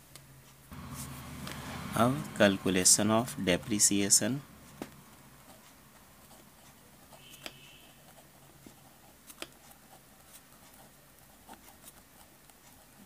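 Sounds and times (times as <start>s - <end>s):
pen scratching on paper: 3.5s - 13.0s
pen tapping: 8.5s - 9.7s.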